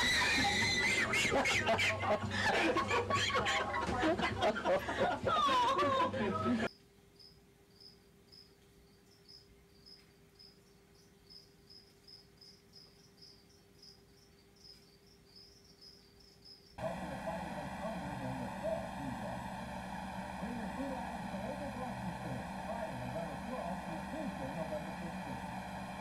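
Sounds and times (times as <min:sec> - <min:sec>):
insect chirping: 0:07.2 - 0:16.8
loud steady hiss: 0:16.8 - 0:26.0
low steady hum: 0:16.8 - 0:26.0.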